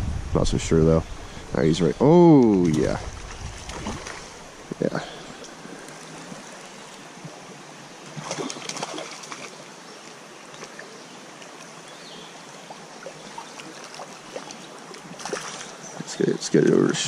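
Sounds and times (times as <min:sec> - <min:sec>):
creek water running: 0:00.2 - 0:17.0
fish splashing at surface: 0:08.2 - 0:09.5.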